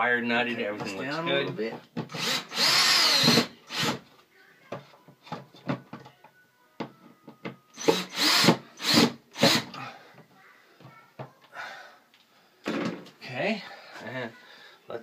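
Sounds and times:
cordless drill motor bursts: 2.1s - 4.0s, 7.8s - 9.7s.

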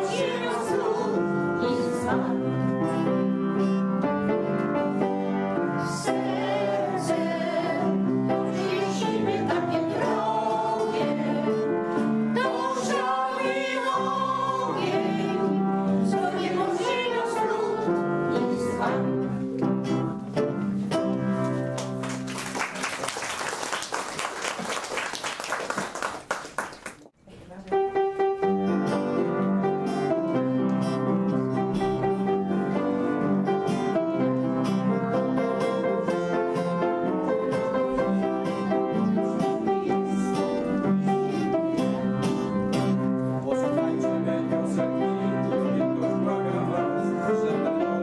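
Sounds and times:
vocal ensemble singing: 0.0s - 3.7s, 5.0s - 19.4s, 37.3s - 48.0s
audience applause: 21.8s - 27.1s.

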